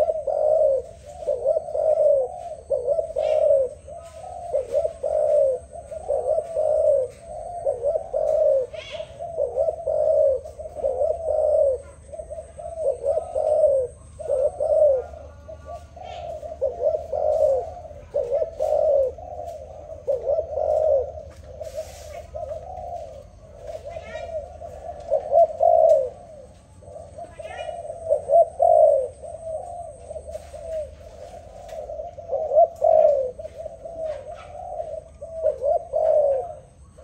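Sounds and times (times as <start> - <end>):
dove cooing: 0.0 - 37.0.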